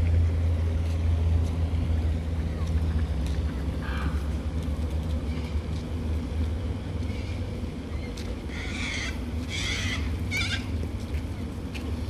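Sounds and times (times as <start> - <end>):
steady low rumble: 0.0 - 12.0
cockatoos screeching: 8.0 - 10.8.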